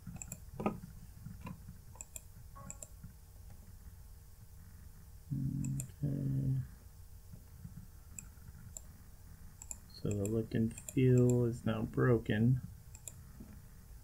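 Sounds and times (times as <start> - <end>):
computer mouse clicks: 0.0 - 0.7, 1.4 - 3.0, 8.1 - 8.9, 9.6 - 11.4, 12.9 - 13.3
short low hums: 0.0 - 14.0.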